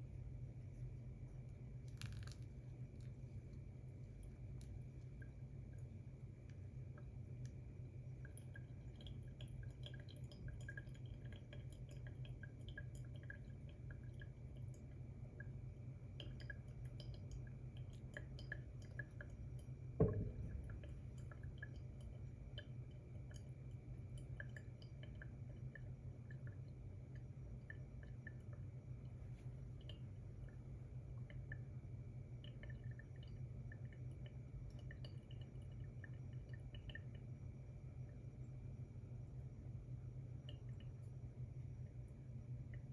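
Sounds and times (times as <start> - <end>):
coffee dripping through filter: 0.0 - 42.9
low steady hum: 0.0 - 42.9
kettle set down on table: 20.0 - 20.7.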